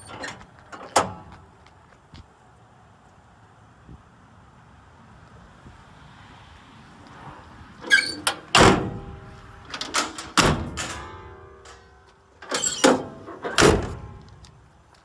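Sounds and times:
metal doors slamming shut: 0:00.0 - 0:01.3, 0:07.8 - 0:14.2.

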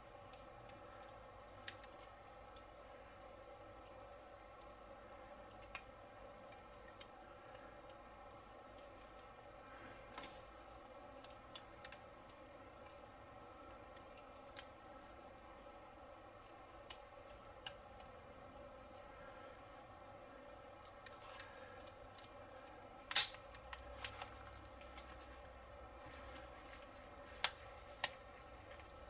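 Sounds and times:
small wheel parts clicking: 0:00.0 - 0:02.7, 0:05.4 - 0:09.4, 0:11.1 - 0:15.7.

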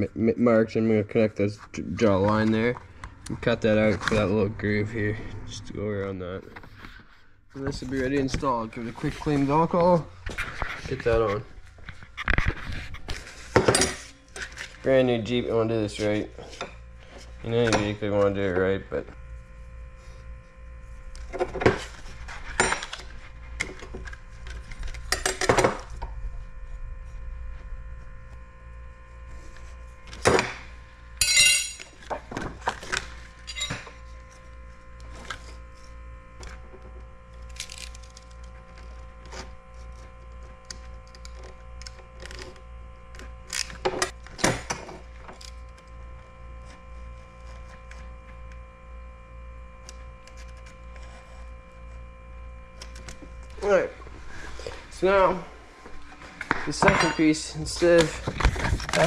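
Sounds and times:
steady electrical hum: 0:00.0 - 0:59.0
tools clinking on glass board: 0:31.2 - 0:31.8
film being cut: 0:37.3 - 0:46.0.

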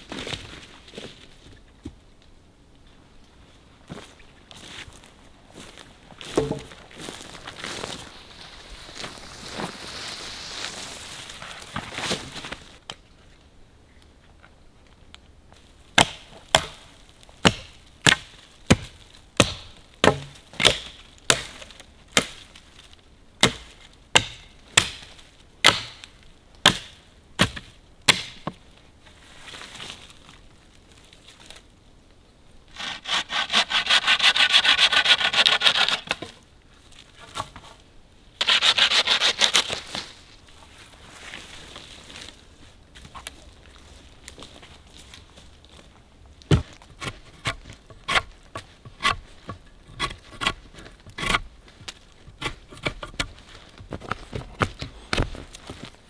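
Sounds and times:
hatchet chopping wood: 0:06.4 - 0:06.7, 0:16.0 - 0:16.8, 0:17.4 - 0:21.5, 0:23.4 - 0:28.6
saw cutting through wood: 0:32.8 - 0:36.1, 0:38.4 - 0:39.7.

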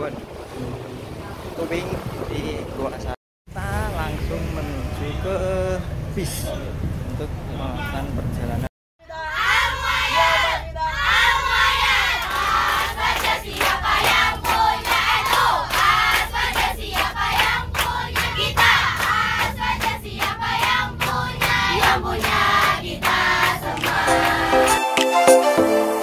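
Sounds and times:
bus rumble: 0:00.3 - 0:24.6
girls singing and shouting: 0:09.0 - 0:24.8.

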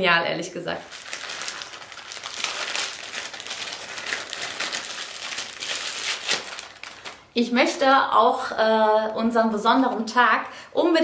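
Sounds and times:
plastic packaging crinkling: 0:00.7 - 0:07.4.

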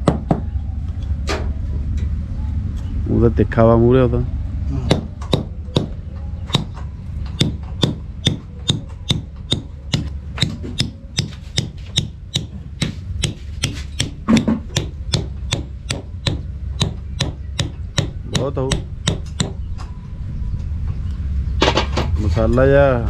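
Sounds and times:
low background rumble: 0:00.0 - 0:23.0
hammer striking steel spike: 0:07.4 - 0:19.6.

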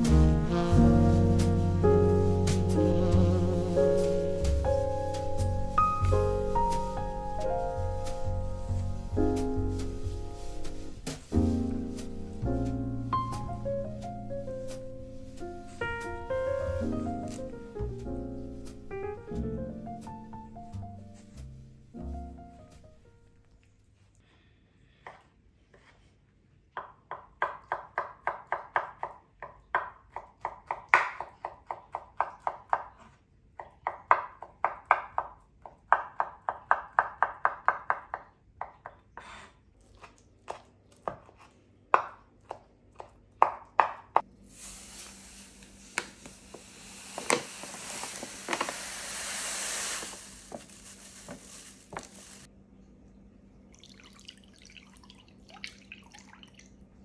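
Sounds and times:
steady hiss: 0:00.0 - 0:21.9, 0:44.3 - 0:52.5.

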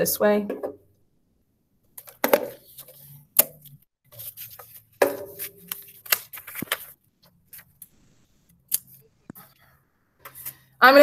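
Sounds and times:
paper rustling and scraping: 0:02.5 - 0:03.3, 0:04.1 - 0:09.0.

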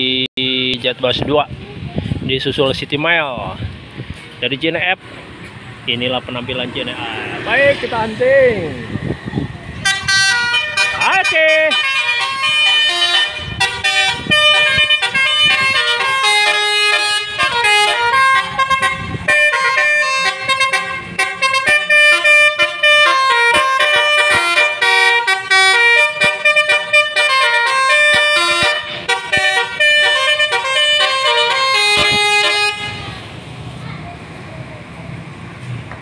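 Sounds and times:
musical air horn playing a tune: 0:09.8 - 0:33.2.

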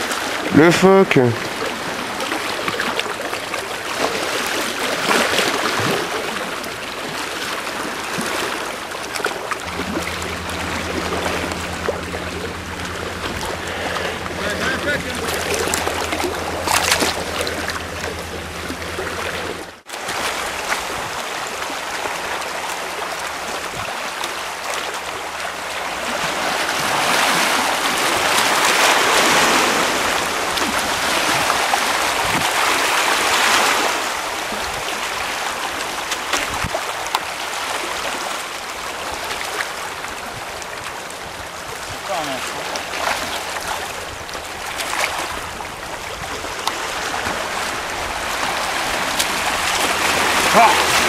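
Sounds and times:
sea water rushing over rocks: 0:00.0 - 0:51.0
low steady hum: 0:09.6 - 0:19.8.

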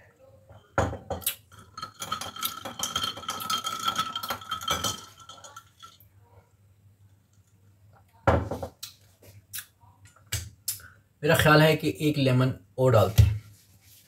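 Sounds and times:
spoon stirring ice in glass: 0:01.5 - 0:06.0.

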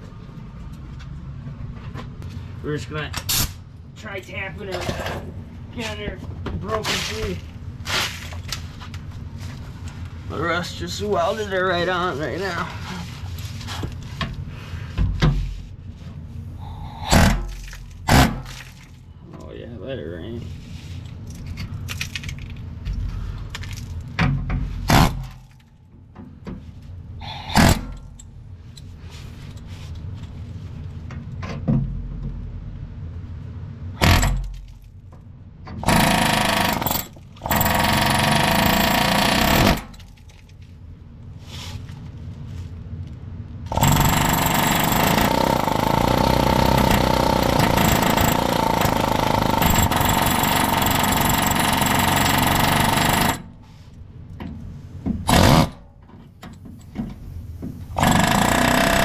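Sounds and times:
pneumatic air hammer hammering: 0:16.6 - 0:18.8, 0:24.2 - 0:25.6, 0:27.2 - 0:28.2, 0:34.0 - 0:34.7, 0:35.8 - 0:40.3, 0:43.7 - 0:53.6, 0:55.1 - 0:59.0.

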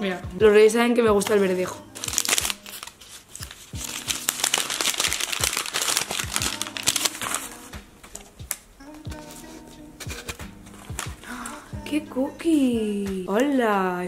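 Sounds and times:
wrapping paper crinkling: 0:01.9 - 0:11.6.

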